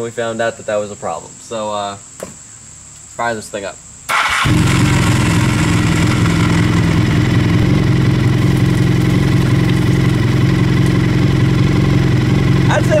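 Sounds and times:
motorcycle engine idling: 4.1 - 13.0.

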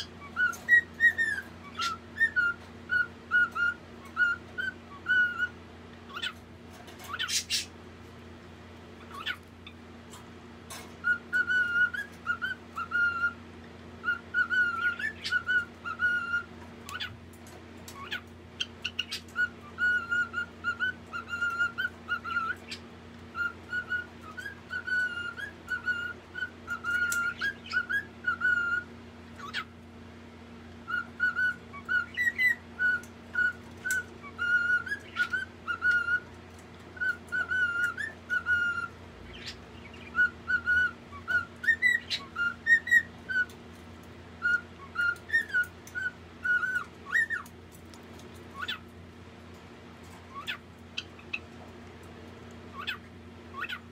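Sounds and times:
cockatiel whistling: 0.0 - 6.4, 11.0 - 13.4, 14.0 - 17.1, 18.0 - 29.7, 30.8 - 36.3, 37.0 - 43.6, 44.4 - 47.5, 48.5 - 48.8, 50.3 - 51.4, 52.7 - 53.8.

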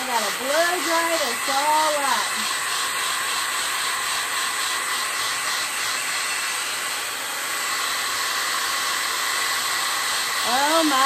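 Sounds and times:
hair dryer running: 0.0 - 11.0.

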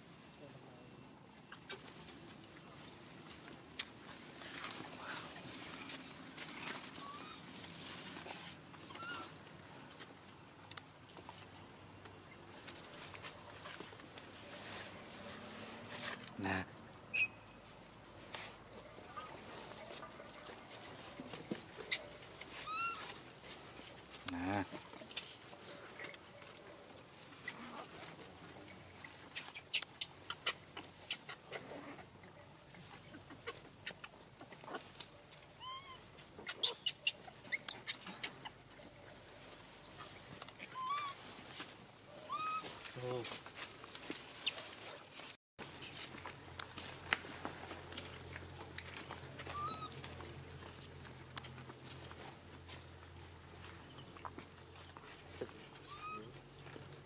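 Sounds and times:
monkeys rustling: 1.4 - 16.4, 17.1 - 57.0
monkey low call: 8.9 - 9.4, 21.9 - 23.2, 35.6 - 38.6, 40.6 - 41.3, 42.1 - 42.8, 49.4 - 50.0, 55.8 - 56.4
chirping animal call: 21.8 - 23.2, 40.0 - 41.3, 42.2 - 42.8, 49.4 - 50.0, 55.7 - 56.4.

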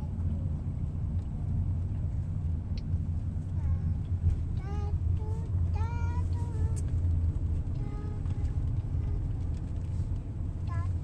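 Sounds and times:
car engine and road rumble: 0.0 - 11.0
child singing: 3.6 - 6.8, 7.7 - 9.4, 10.6 - 11.0.

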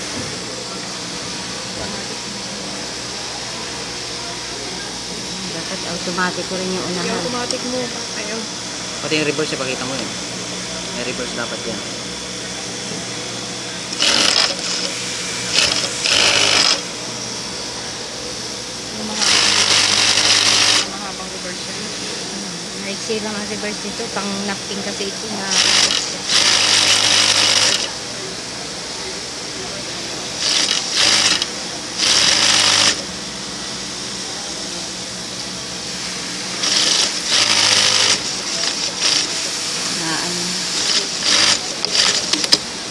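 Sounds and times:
steady low hum: 0.0 - 26.5
sewing machine stitching: 13.9 - 16.8, 19.2 - 20.9, 25.5 - 27.9, 30.4 - 33.0, 36.6 - 39.4, 40.7 - 42.6.

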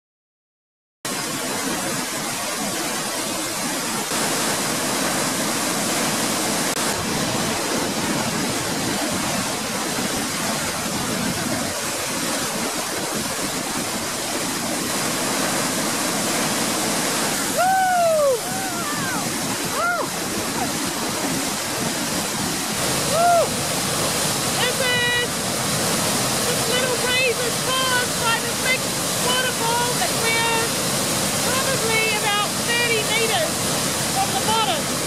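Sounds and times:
waterfall rushing: 1.1 - 35.0.

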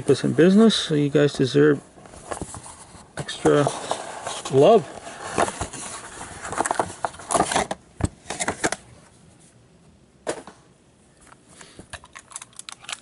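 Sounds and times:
cardboard box rustles and clicks: 2.2 - 8.8.

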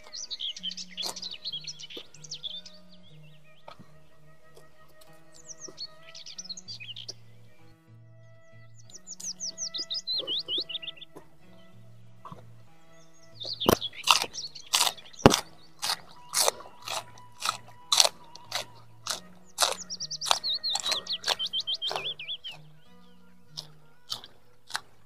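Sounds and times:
crunching raw vegetables: 0.0 - 7.2, 13.3 - 25.0
soft background music: 0.0 - 25.0.

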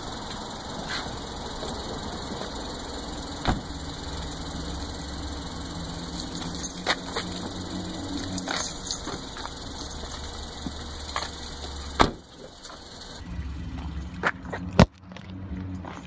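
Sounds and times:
car engine humming: 0.0 - 16.0
car door shutting: 3.4 - 3.7, 12.0 - 12.3.

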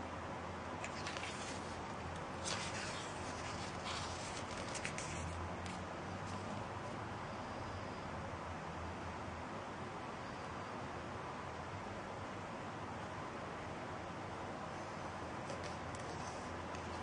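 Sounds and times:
book page turning: 0.8 - 6.6.

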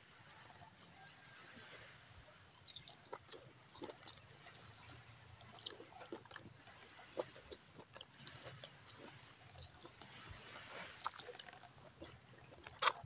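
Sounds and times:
wet chewing and sucking: 2.5 - 13.0.

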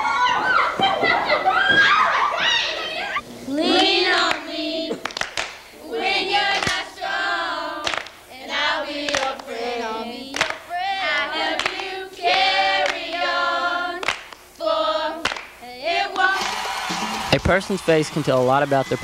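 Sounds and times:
teenagers singing together: 2.3 - 17.2
handclaps: 4.3 - 5.6, 7.8 - 8.2, 9.1 - 9.5, 10.3 - 10.6, 11.6 - 11.8, 14.0 - 14.4, 15.2 - 15.6, 16.2 - 19.0.

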